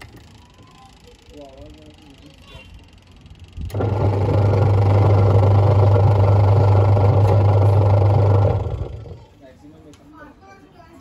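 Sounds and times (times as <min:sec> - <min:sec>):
washing machine motor humming: 0:03.6 - 0:09.3.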